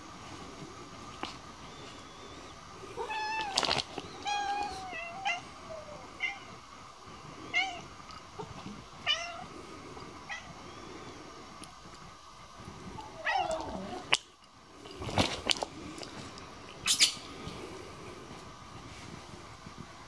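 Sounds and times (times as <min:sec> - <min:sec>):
cat meowing: 0:13.0 - 0:14.1.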